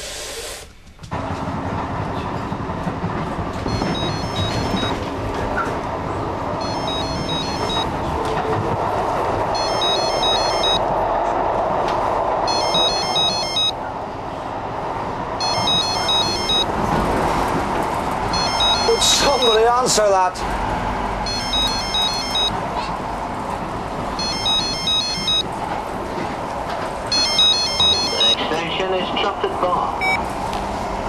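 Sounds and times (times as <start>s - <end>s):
passenger train running: 0.0s - 31.0s.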